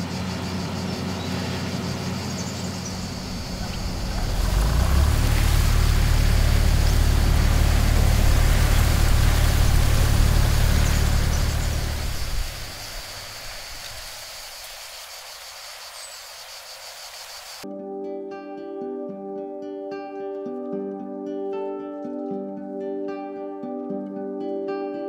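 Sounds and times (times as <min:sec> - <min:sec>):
combine harvester engine drone: 0:00.0 - 0:14.2
rushing noise: 0:02.6 - 0:17.6.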